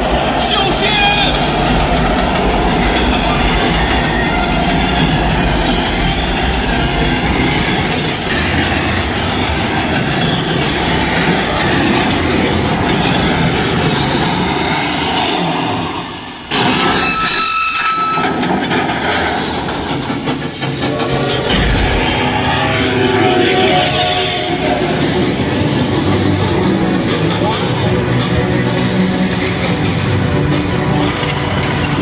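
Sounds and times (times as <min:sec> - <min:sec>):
train wheels rumbling: 0:00.0 - 0:32.0.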